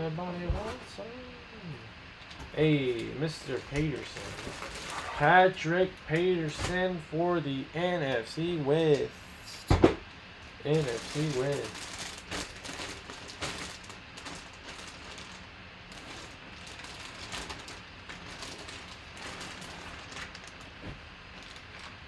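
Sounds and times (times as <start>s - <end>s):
plastic bag crinkling: 3.5s - 5.2s, 10.7s - 22.0s.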